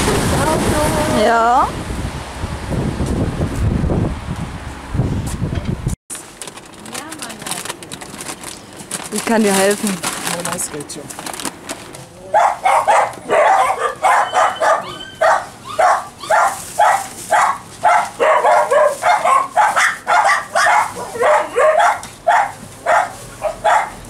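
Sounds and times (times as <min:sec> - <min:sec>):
dogs barking: 0:12.3 - 0:24.0.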